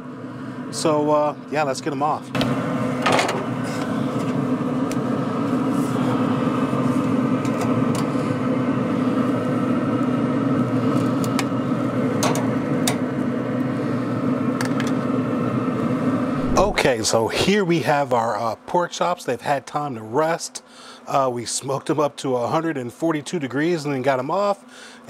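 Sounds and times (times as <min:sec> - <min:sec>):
grill fan humming: 0:00.0 - 0:25.0.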